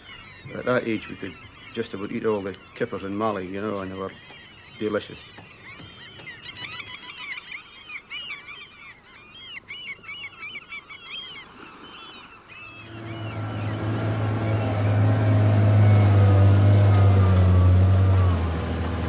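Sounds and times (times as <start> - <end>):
gulls calling: 0.0 - 19.0
boat engine humming: 12.5 - 19.0.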